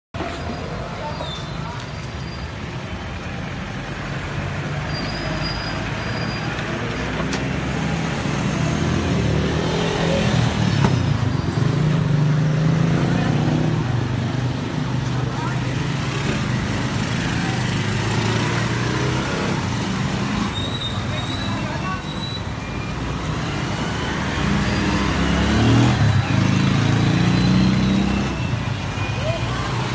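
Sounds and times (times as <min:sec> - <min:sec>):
street traffic: 0:00.1 - 0:29.9
vehicle engine revving: 0:23.2 - 0:28.5.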